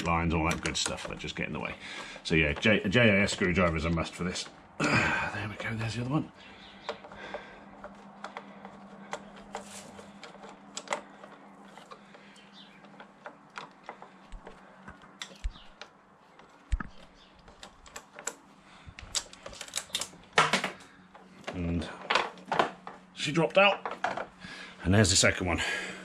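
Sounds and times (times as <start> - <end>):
screwdriver clicks and taps: 0.0 - 4.6, 6.8 - 18.4.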